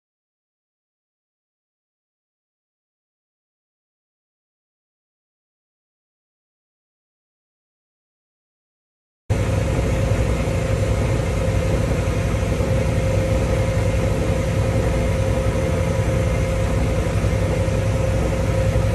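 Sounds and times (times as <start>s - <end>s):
boat engine rumble: 9.3s - 18.9s
mid-pitched engine whine: 9.3s - 18.9s.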